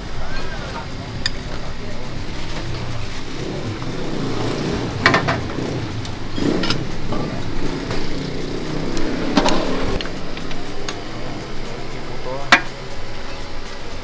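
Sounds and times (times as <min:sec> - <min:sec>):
vehicle engines running: 0:00.0 - 0:14.0
porcelain bowls clinking: 0:00.2 - 0:08.2.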